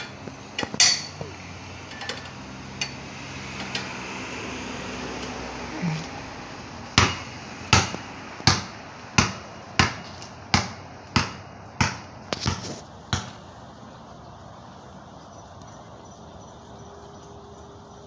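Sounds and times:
basketball bouncing on concrete: 6.9 - 13.5.

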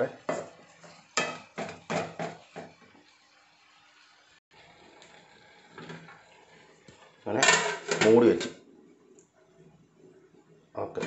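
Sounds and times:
metal pot lid clanking: 7.4 - 8.6.

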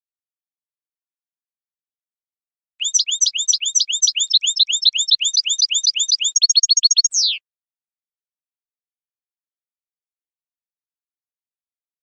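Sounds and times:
bird chirping and trilling: 2.8 - 7.4.

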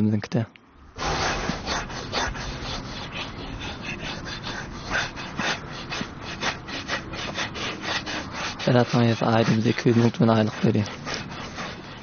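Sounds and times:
brush scraping horse's coat: 1.0 - 12.0.

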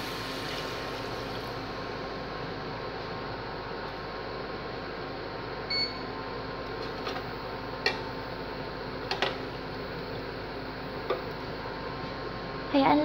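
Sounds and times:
cooling fan hum: 0.0 - 13.0
short electronic beep: 5.7 - 6.1.

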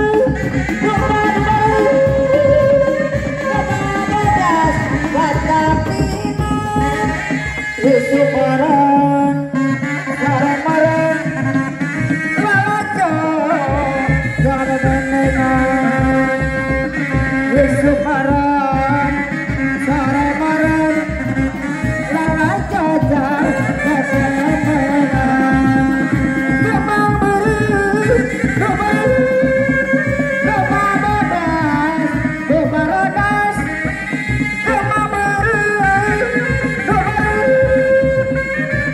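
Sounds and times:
deep drum beats: 0.0 - 8.8, 9.8 - 38.9
wavering high melody: 0.0 - 11.8
drums beating driving rhythm: 0.0 - 38.9.

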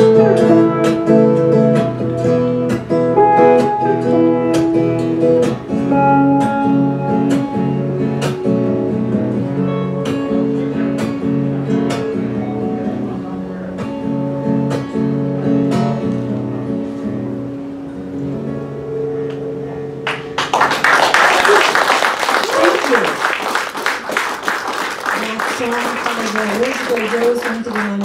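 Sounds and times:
acoustic guitar strumming: 0.0 - 20.8
electric guitar playing: 0.0 - 28.0.

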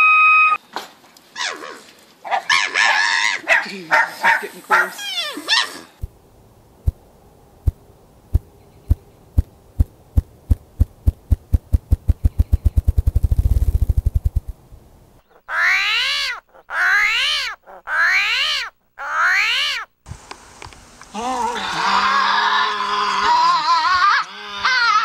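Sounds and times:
grouse drumming wing thumps: 7.6 - 14.6
animal calls rising and falling: 15.2 - 19.9, 21.1 - 25.0.

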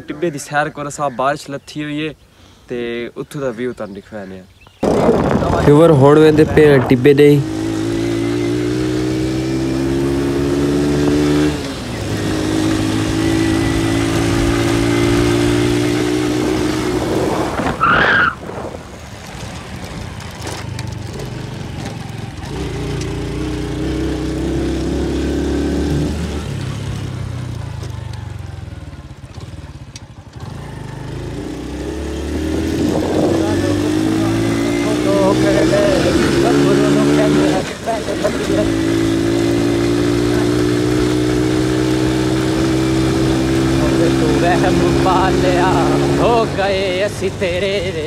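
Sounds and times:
wind noise on microphone: 4.7 - 8.7, 12.2 - 20.2, 32.4 - 34.7
motorcycle engine running: 4.8 - 17.7, 18.4 - 48.0.

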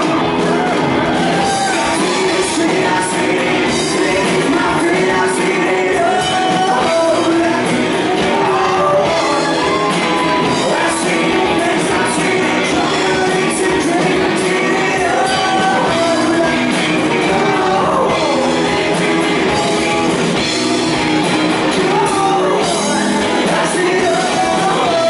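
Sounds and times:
bass guitar: 0.0 - 25.0
drums: 0.0 - 25.0
electric guitars: 0.0 - 25.0
man singing into microphone: 1.4 - 19.7, 21.8 - 25.0.

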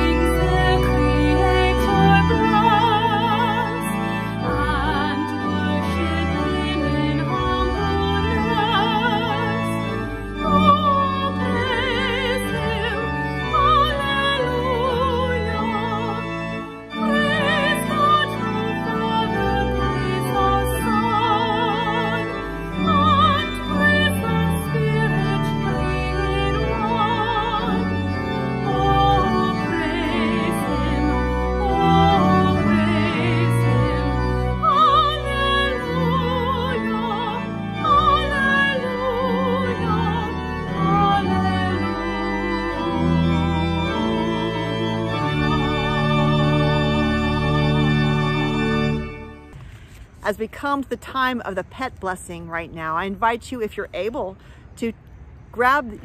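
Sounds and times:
person singing with vibrato: 0.0 - 43.3
organ chords: 0.0 - 56.0.

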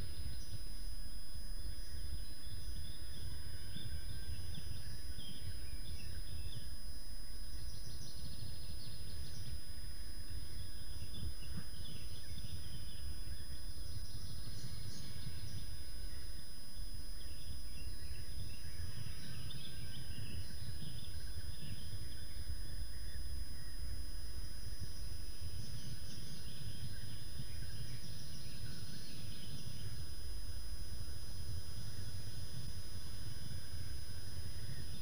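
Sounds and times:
songbird chirps: 0.0 - 35.0.

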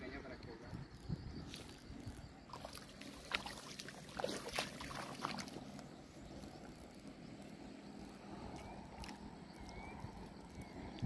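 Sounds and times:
water lapping: 2.5 - 5.8.

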